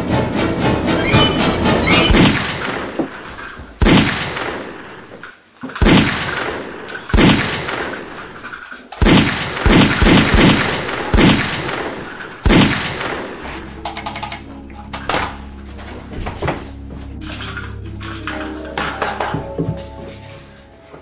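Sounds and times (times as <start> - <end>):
gunshots with ringing tail: 1.9 - 3.0, 3.8 - 5.1, 5.8 - 8.4, 9.0 - 13.7.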